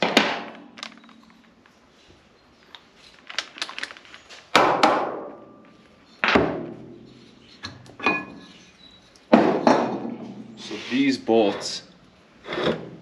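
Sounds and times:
metal pieces knocking on wood: 0:09.3 - 0:10.4.

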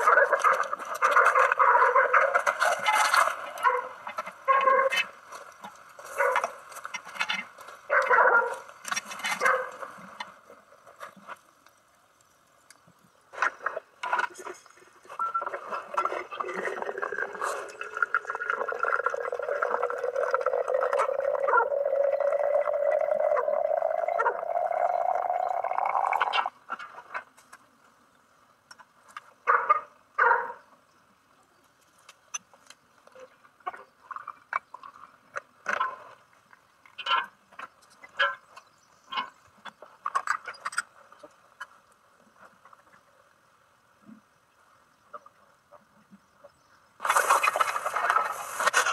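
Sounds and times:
water pouring into teapot: 0:16.3 - 0:26.5.

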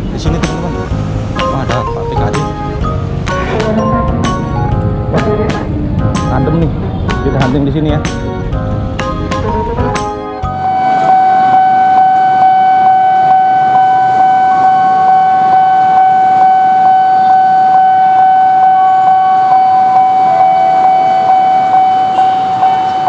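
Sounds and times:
level crossing alarm tone: 0:10.2 - 0:23.0
second stepping alarm tone: 0:10.3 - 0:23.0.

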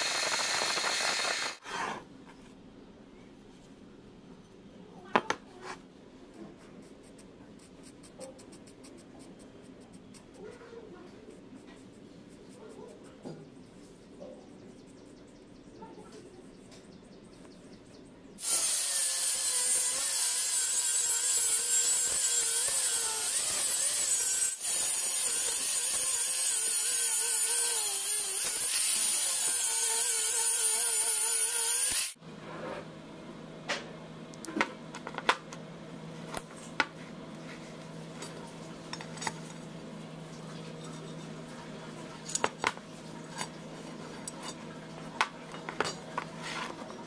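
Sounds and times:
angle grinder cutting steel: 0:00.0 - 0:01.6, 0:18.4 - 0:32.2.

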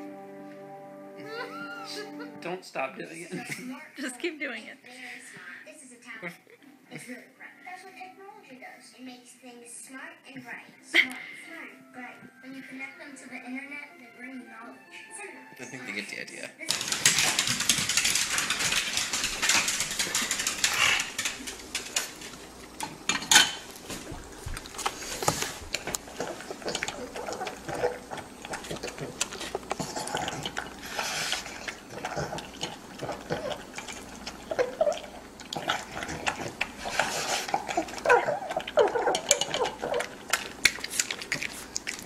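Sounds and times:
kibble clinking in metal bowl: 0:16.7 - 0:23.7, 0:37.5 - 0:41.1.

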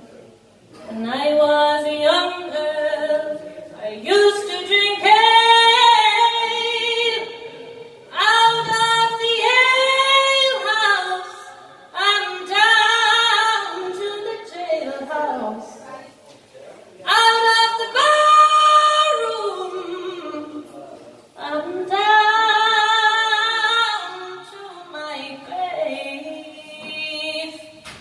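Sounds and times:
woman singing folk ballad: 0:00.9 - 0:07.4, 0:08.1 - 0:15.8, 0:21.4 - 0:27.8.

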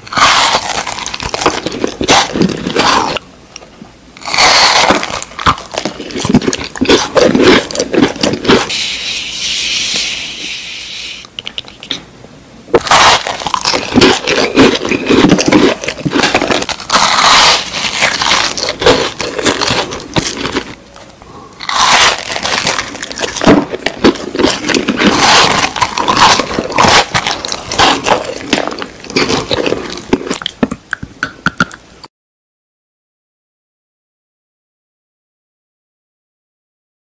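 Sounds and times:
crunching and chewing: 0:00.0 - 0:08.8, 0:12.7 - 0:31.8.

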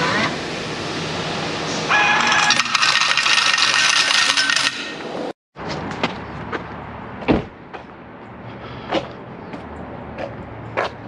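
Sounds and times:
coins clattering into cup: 0:02.0 - 0:05.1.

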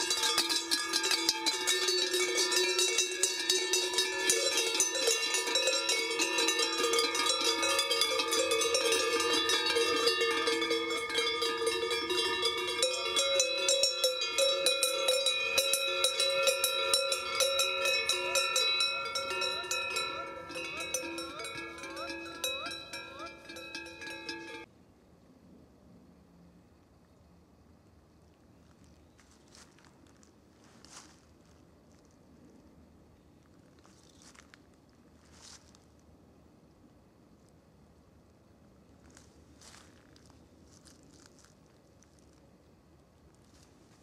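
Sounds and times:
cowbells clanging: 0:00.0 - 0:24.7.

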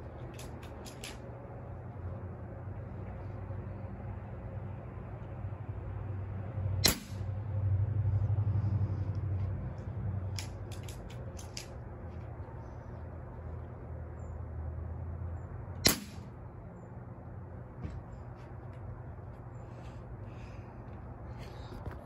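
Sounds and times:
low steady hum: 0:00.0 - 0:22.0
air rifle shot crack: 0:06.8 - 0:07.3, 0:15.8 - 0:16.3.

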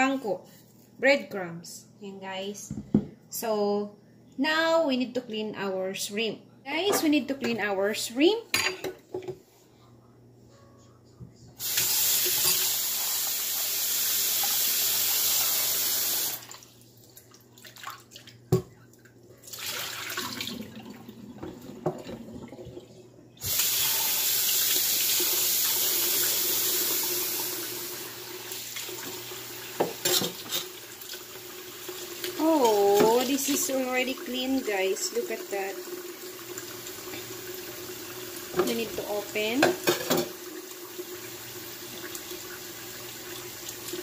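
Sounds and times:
water poured into drain: 0:19.5 - 0:22.7.

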